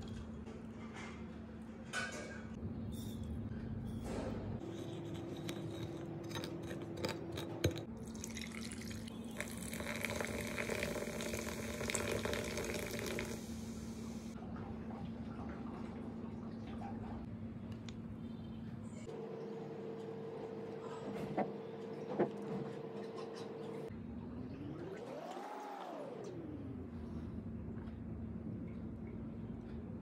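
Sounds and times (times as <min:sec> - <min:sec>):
liquid pouring over ice: 0:08.0 - 0:13.4.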